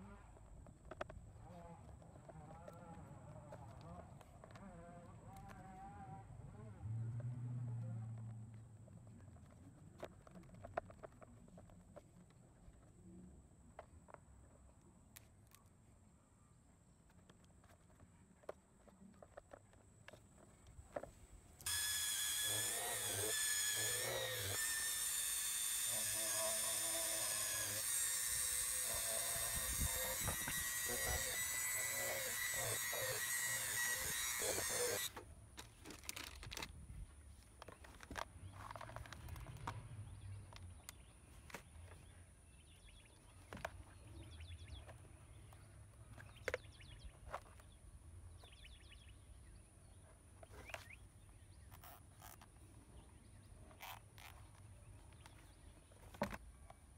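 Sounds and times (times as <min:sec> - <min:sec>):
rotary tool drilling plastic: 0:21.6 - 0:35.2.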